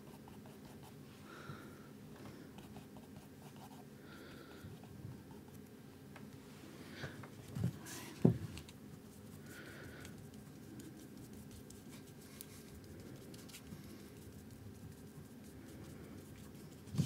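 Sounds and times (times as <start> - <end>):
paintbrush scrubbing on canvas: 9.0 - 17.0.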